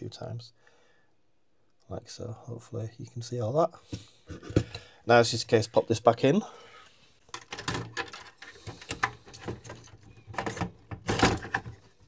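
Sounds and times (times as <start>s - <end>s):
plastic mechanism clicks and knocks: 7.3s - 12.0s.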